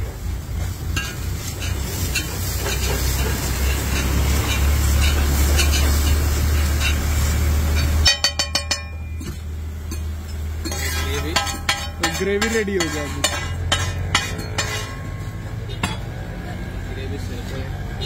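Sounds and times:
spatula scraping griddle: 0.4s - 9.4s, 10.6s - 15.4s
spatula tapping on griddle: 7.7s - 15.0s.

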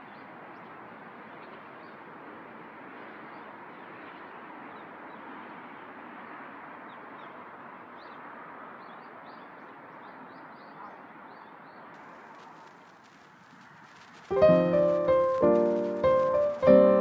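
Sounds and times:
outdoor background hiss: 12.0s - 17.0s
small bird chirping: 12.2s - 17.0s.

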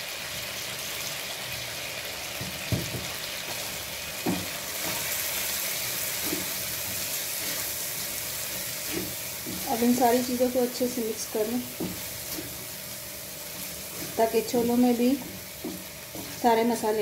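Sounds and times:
food sizzling in oil: 0.0s - 17.0s
spatula knocking against pan: 4.2s - 4.5s, 11.6s - 12.5s, 15.1s - 16.4s.

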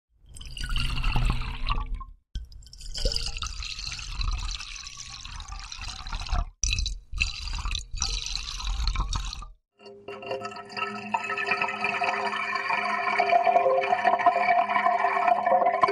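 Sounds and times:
water poured into glass: 0.3s - 15.9s.

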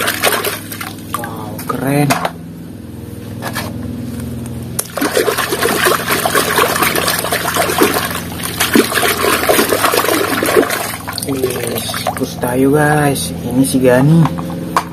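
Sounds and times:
low steady hum: 0.0s - 14.9s
toy scrubbed in muddy water: 4.8s - 12.4s.

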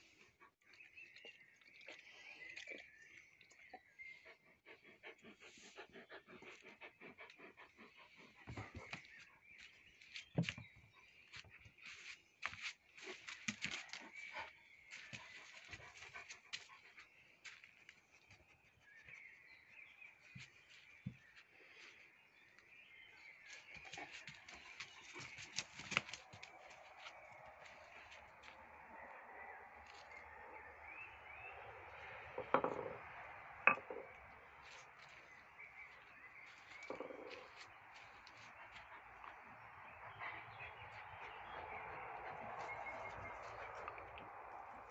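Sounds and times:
large dog panting: 4.2s - 9.0s, 38.2s - 43.6s.

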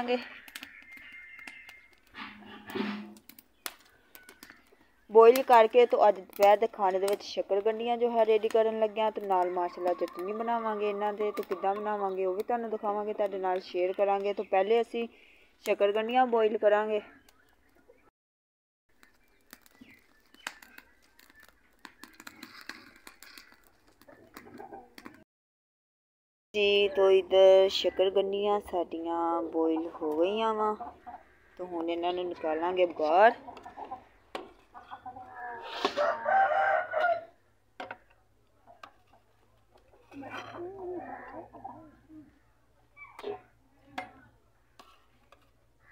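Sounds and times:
fire crackling: 0.0s - 17.8s, 18.9s - 25.2s
rooster crowing: 35.9s - 37.4s.

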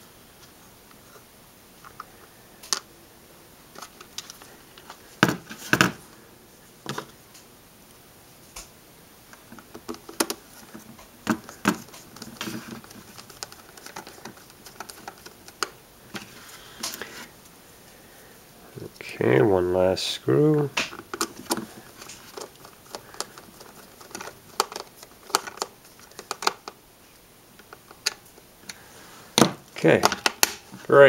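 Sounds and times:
plastic clicks and knocks: 29.4s - 30.6s.

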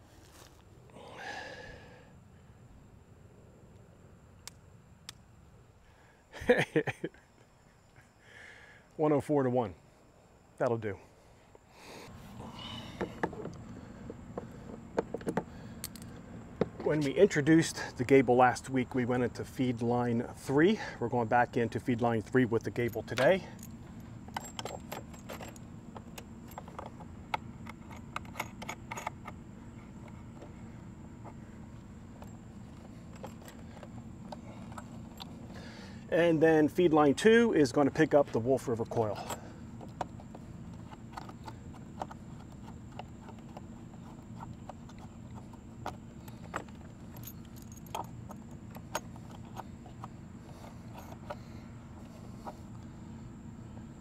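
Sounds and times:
steady low hum: 0.0s - 54.0s
metal connectors clicking and scraping: 22.6s - 30.6s.

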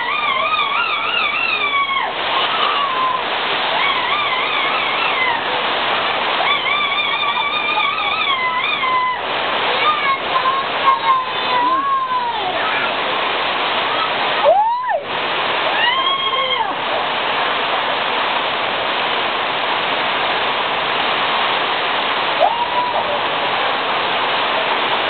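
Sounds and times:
rainwater streaming down steps: 0.0s - 25.0s
high-pitched voices calling out: 6.4s - 13.1s.

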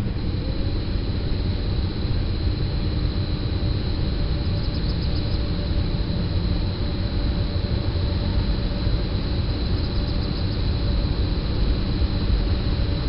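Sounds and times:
electric locomotive rumble: 0.0s - 13.0s
high electrical whine: 0.0s - 13.0s.

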